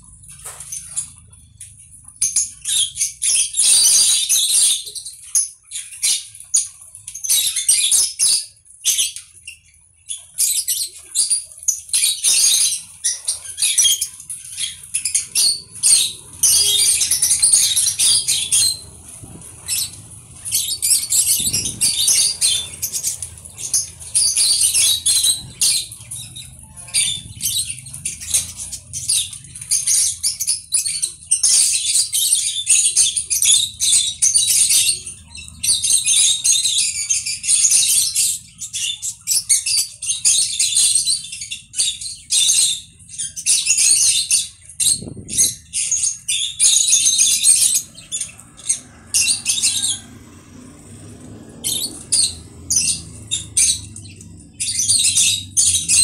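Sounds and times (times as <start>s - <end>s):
parrot chattering and screeching: 12.0s - 56.0s.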